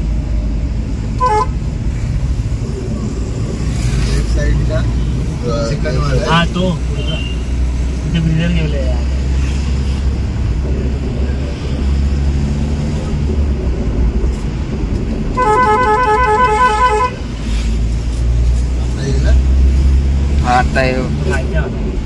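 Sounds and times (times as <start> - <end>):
motor vehicle engine rumble: 0.0 - 22.0.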